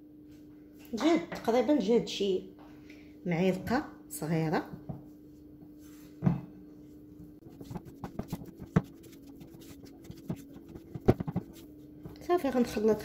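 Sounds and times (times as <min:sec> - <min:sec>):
low steady hum: 0:02.1 - 0:13.0
spatula scraping glass bowl: 0:07.4 - 0:11.7.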